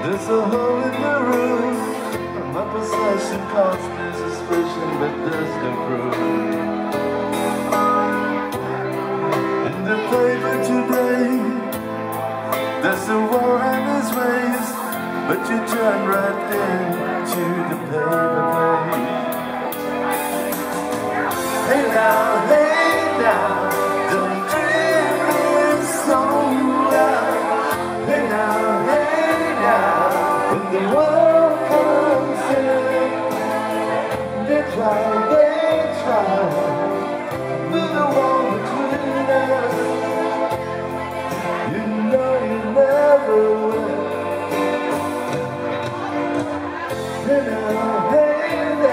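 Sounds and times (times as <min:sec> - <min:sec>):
keyboards playing held chords: 0:00.0 - 0:48.9
person singing: 0:00.0 - 0:48.9.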